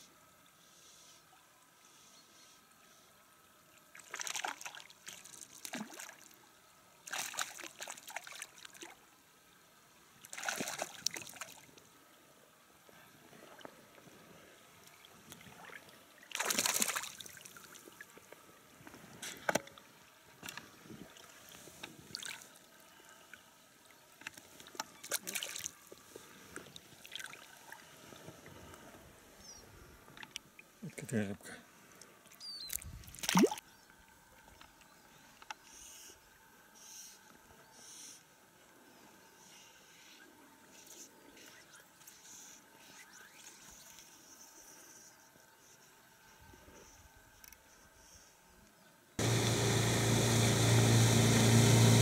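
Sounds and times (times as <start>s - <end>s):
fish splashing at water surface: 4.0s - 6.3s, 7.0s - 9.0s, 10.2s - 11.6s, 15.5s - 18.0s.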